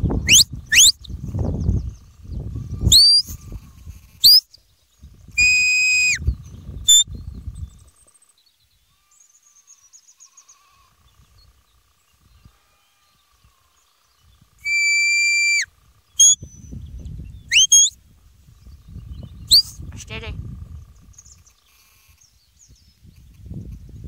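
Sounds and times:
herding whistle notes: 0:00.3 - 0:01.0, 0:05.4 - 0:06.2, 0:14.6 - 0:16.4, 0:17.5 - 0:17.9.

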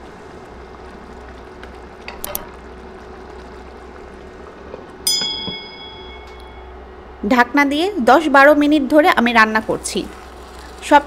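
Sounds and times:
food bubbling in a pan: 0:00.0 - 0:05.1, 0:09.7 - 0:11.0
glass lid clinking on pan: 0:05.1 - 0:06.7.

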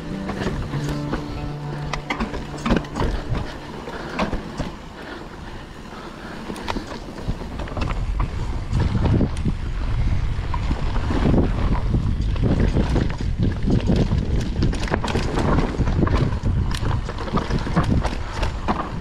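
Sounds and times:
bike knocking and rattling: 0:00.0 - 0:19.0
bike tyres rolling on dirt: 0:00.0 - 0:19.0
wind rushing on microphone: 0:06.4 - 0:19.0.

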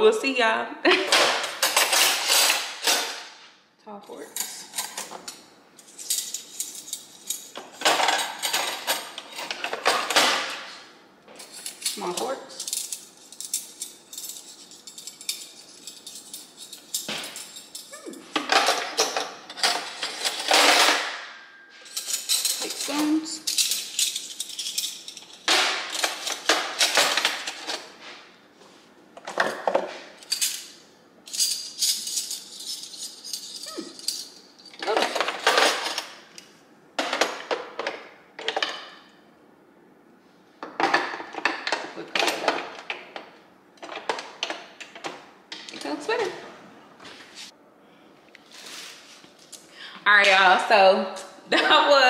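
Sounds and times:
metal cutlery clattering: 0:00.9 - 0:03.4, 0:04.3 - 0:10.8, 0:11.4 - 0:28.1, 0:29.2 - 0:39.1, 0:40.7 - 0:43.2, 0:43.8 - 0:46.2.

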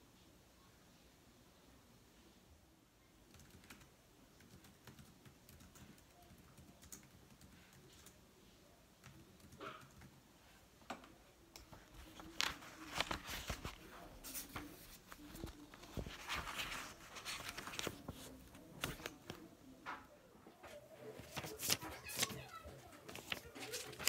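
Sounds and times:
book pages riffling: 0:11.9 - 0:19.4, 0:21.2 - 0:24.0.

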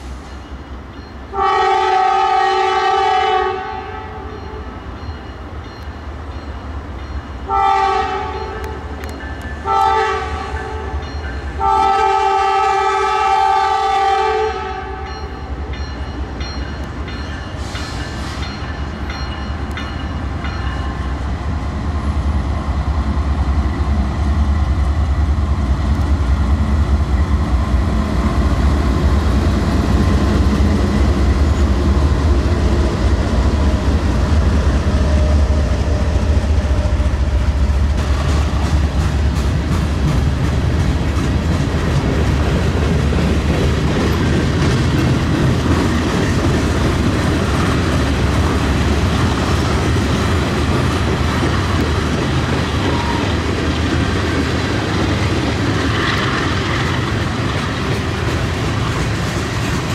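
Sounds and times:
locomotive air horn blasts: 0:01.3 - 0:04.7, 0:07.5 - 0:08.8, 0:09.6 - 0:11.0, 0:11.6 - 0:15.1, 0:52.8 - 0:53.4
locomotive rumble: 0:06.1 - 0:59.9.

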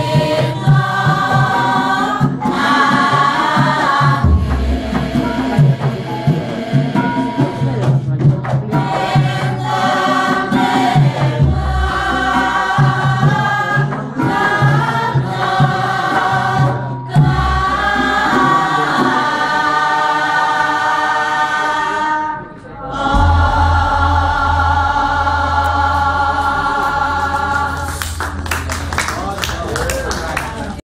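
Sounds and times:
gamelan accompaniment: 0:00.0 - 0:19.8, 0:22.9 - 0:30.0
group of voices singing: 0:00.0 - 0:28.7
deep gong strokes: 0:04.2 - 0:06.3, 0:23.0 - 0:29.5.

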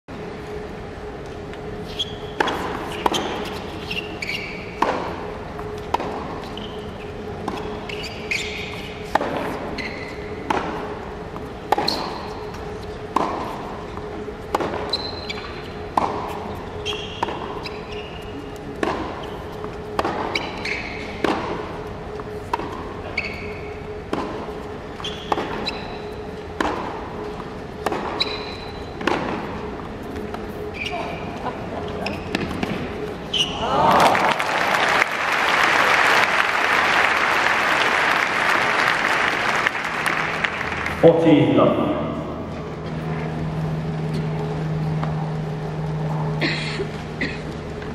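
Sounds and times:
shoe squeaks on court: 0:01.8 - 0:04.8, 0:06.4 - 0:10.4, 0:11.8 - 0:13.0, 0:14.8 - 0:18.5, 0:19.1 - 0:19.6, 0:20.2 - 0:21.3, 0:23.0 - 0:23.8, 0:25.0 - 0:26.3, 0:28.0 - 0:29.1, 0:30.6 - 0:31.3, 0:31.9 - 0:33.6
tennis ball struck by racket: 0:02.4 - 0:06.5, 0:08.3 - 0:13.7, 0:14.4 - 0:17.8, 0:18.6 - 0:22.9, 0:24.1 - 0:24.5, 0:25.1 - 0:26.0, 0:26.6 - 0:27.2, 0:27.8 - 0:29.6
ball bouncing on hard court: 0:07.4 - 0:10.9, 0:11.7 - 0:13.6, 0:25.0 - 0:27.0, 0:27.8 - 0:29.6.

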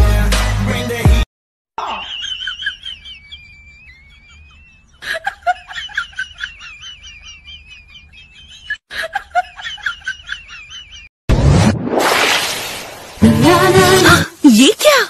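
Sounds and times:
burst of rushing noise: 0:11.3 - 0:13.4.

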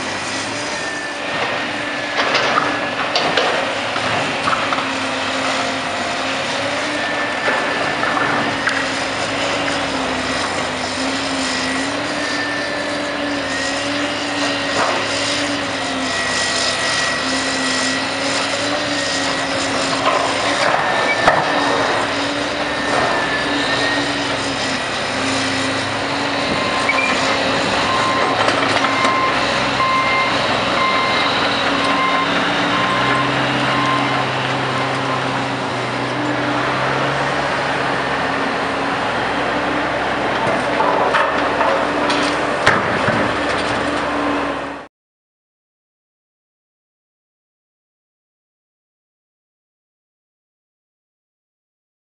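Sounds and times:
excavator diesel engine: 0:00.0 - 0:44.9
backup alarm beeping: 0:27.8 - 0:34.2
debris knocking and crashing: 0:40.4 - 0:43.9.

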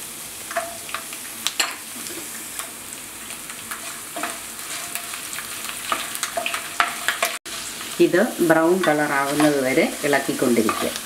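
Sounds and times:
sizzling in hot oil: 0:00.0 - 0:11.0
spoon stirring in pan: 0:03.5 - 0:07.4, 0:08.7 - 0:11.0.

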